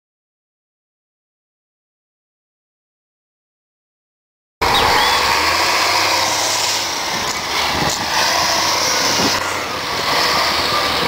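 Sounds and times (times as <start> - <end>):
diesel engine running: 4.6 - 11.0.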